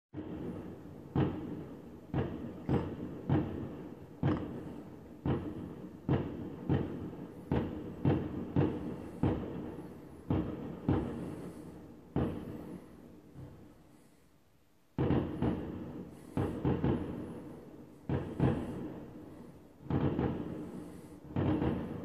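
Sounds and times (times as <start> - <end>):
fireworks booming bangs: 0.1 - 22.0.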